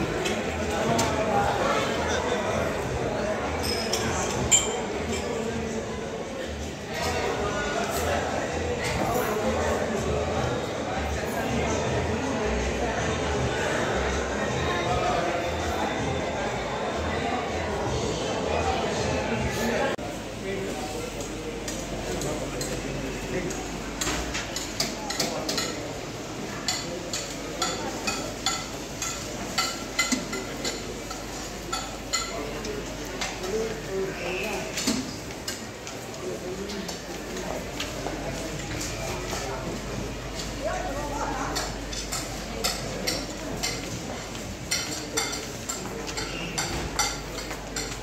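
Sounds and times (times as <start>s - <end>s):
metal spoons clinking on steel pots: 3.6s - 5.4s, 41.5s - 48.0s.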